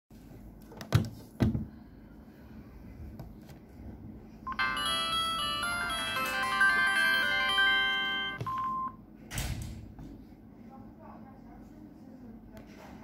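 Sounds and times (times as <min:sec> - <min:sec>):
phone chiming melody: 0:04.5 - 0:09.0.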